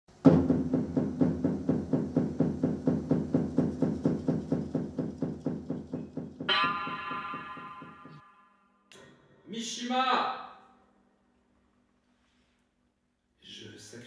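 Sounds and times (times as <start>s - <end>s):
rhythmic low knocks: 0.1s - 8.3s.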